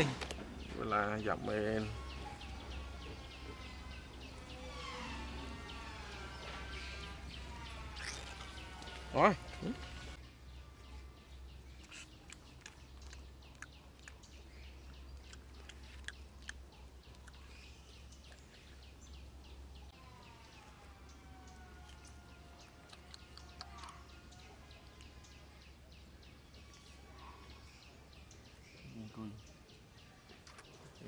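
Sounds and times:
monkey chewing clicks and smacks: 0:08.0 - 0:09.1, 0:11.8 - 0:18.8, 0:21.5 - 0:25.2.

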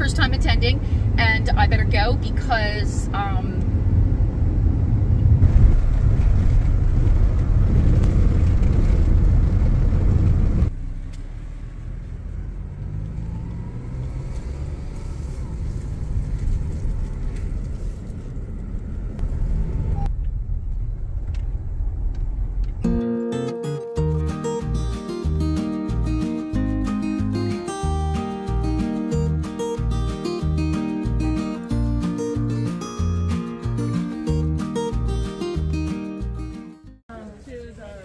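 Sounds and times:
car road noise rumble: 0:00.0 - 0:23.0.

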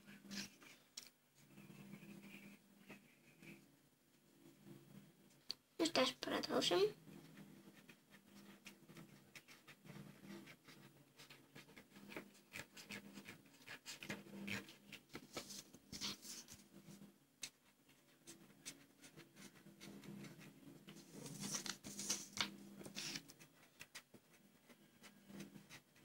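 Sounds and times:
marker scratching on paper: 0:07.2 - 0:16.6, 0:17.4 - 0:26.0.

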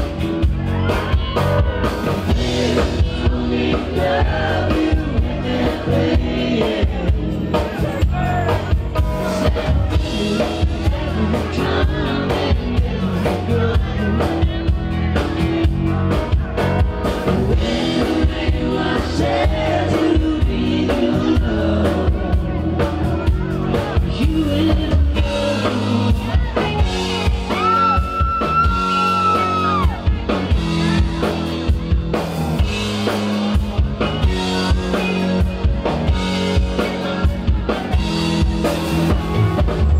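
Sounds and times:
live rock band playing: 0:00.0 - 0:39.9
man singing: 0:02.3 - 0:30.4.

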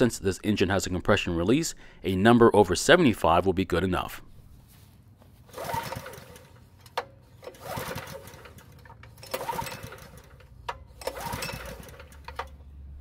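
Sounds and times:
recoil starter rope pulled: 0:05.2 - 0:12.8
small engine turning over: 0:05.4 - 0:12.7.

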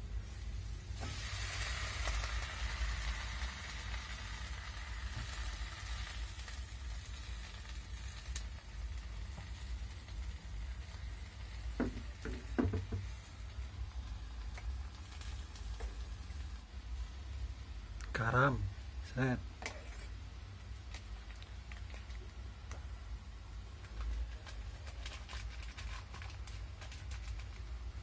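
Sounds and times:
greens sizzling in a wok: 0:00.0 - 0:18.0.

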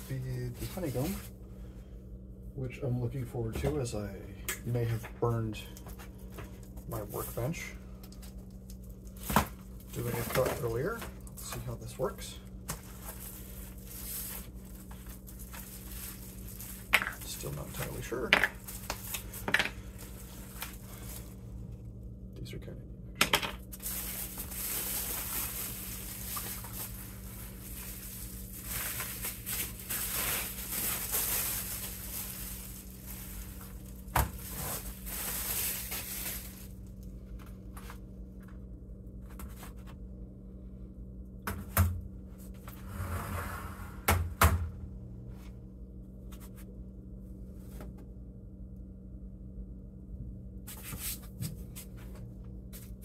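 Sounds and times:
steady low hum: 0:00.0 - 0:53.0
bubble wrap crinkling: 0:06.0 - 0:11.8, 0:12.4 - 0:21.8, 0:23.7 - 0:38.0.

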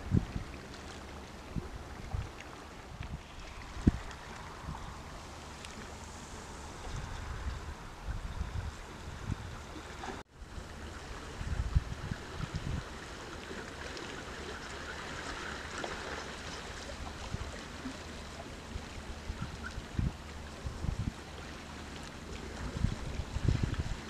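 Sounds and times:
wind buffeting microphone: 0:00.0 - 0:00.6, 0:01.4 - 0:13.1, 0:16.9 - 0:21.4, 0:22.2 - 0:24.0
choppy sea water: 0:00.0 - 0:24.0.

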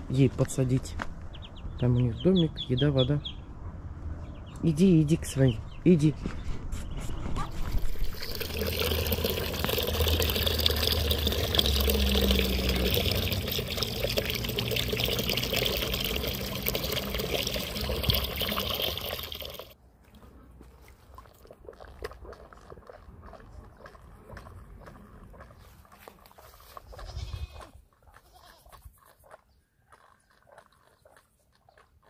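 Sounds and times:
water pouring: 0:07.6 - 0:19.8.

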